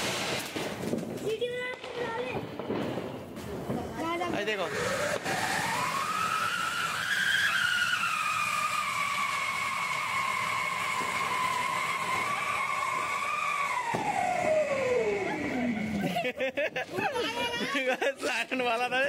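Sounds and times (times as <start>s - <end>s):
hiss of burning sparks: 0.0s - 2.3s, 3.4s - 16.2s
firework fountain whistling: 0.0s - 19.0s.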